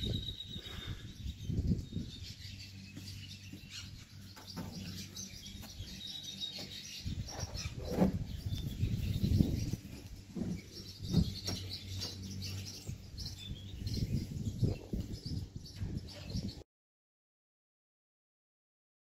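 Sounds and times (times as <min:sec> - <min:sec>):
small birds chirping: 0:00.0 - 0:16.6
handling thumps and rustling: 0:09.9 - 0:12.2.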